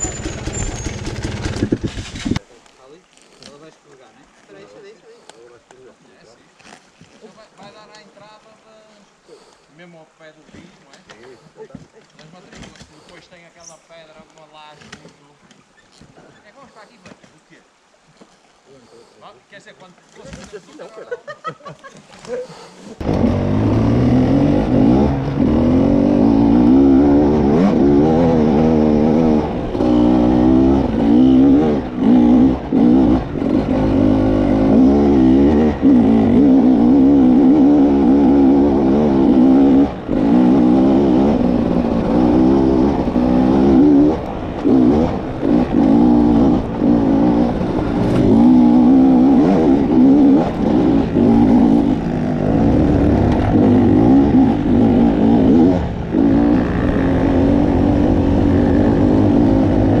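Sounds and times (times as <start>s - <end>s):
motorcycle engine revving: 0.0s - 2.4s, 23.0s - 60.0s.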